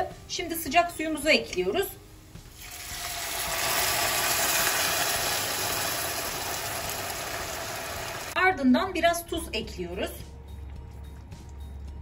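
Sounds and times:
water hissing and bubbling in pan: 2.5 - 8.4.

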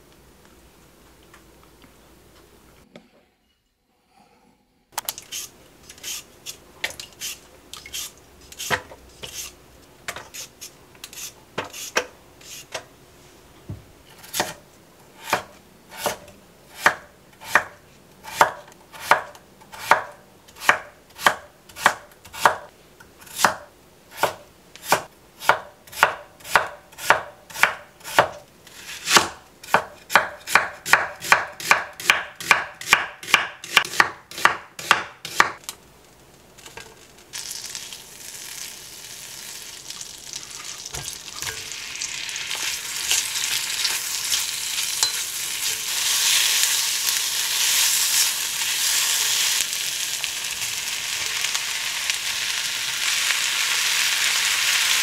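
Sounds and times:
knife chopping on wooden board: 15.2 - 22.7, 24.2 - 28.4, 29.0 - 35.6.

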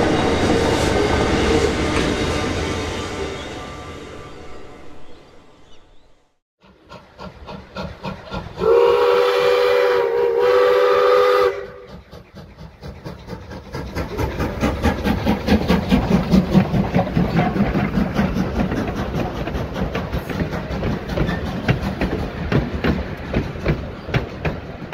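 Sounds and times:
train clattering: 6.6 - 24.9
steam whistle chord: 8.6 - 11.8.

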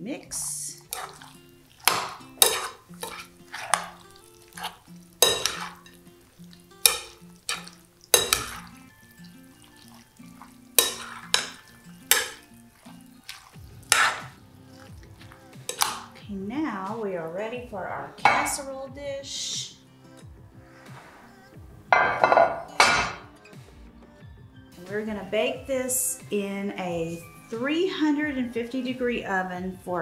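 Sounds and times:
cutlery scraping glass bowl: 0.9 - 6.0, 6.9 - 8.8, 9.7 - 16.2.

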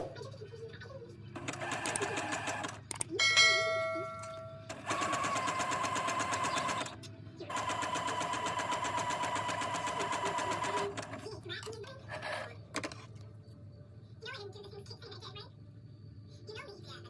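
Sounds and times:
sewing machine running: 1.4 - 2.9, 4.7 - 11.2
ding: 3.2 - 4.6.

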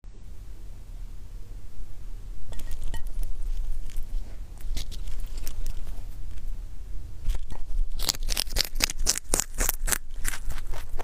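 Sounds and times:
low hum: 0.0 - 11.0
rabbit crunching carrot: 2.3 - 11.0.

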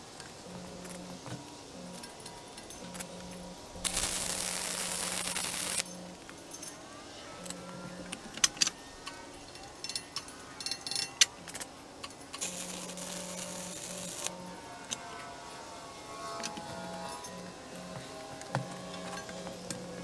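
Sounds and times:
arc welding crackling: 0.0 - 6.4, 11.2 - 15.1
light metallic clinks: 9.5 - 12.3.

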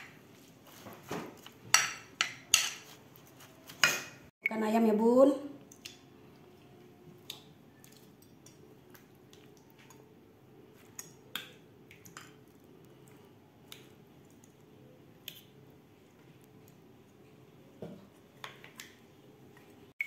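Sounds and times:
soft squish of food: 5.6 - 19.9.

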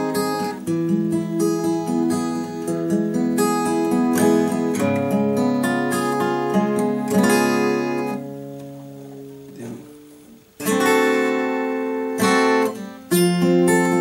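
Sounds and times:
acoustic guitar chords strummed: 0.0 - 14.0.

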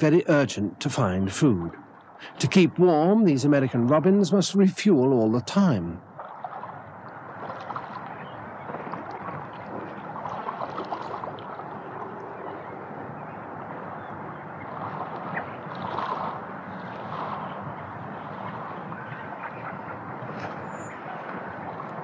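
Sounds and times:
stream running water: 0.0 - 22.0.

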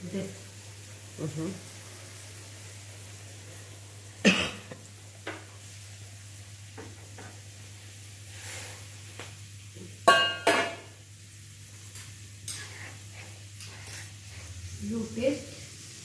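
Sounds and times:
metal cookware knocking: 10.1 - 10.8.

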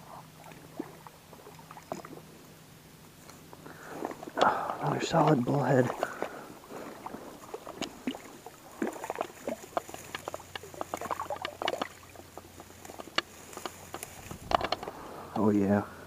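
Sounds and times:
small splashes in shallow water: 0.0 - 15.2
dry reeds crackling: 3.2 - 16.0.

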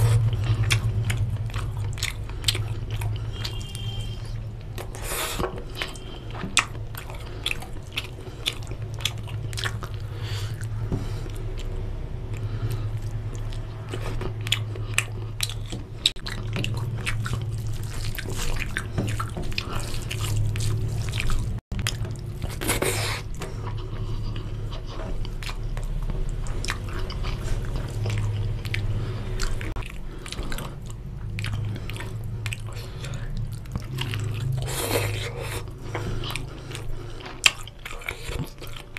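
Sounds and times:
steady low hum: 0.0 - 38.9
wet chewing and mouth sounds: 0.0 - 38.9.

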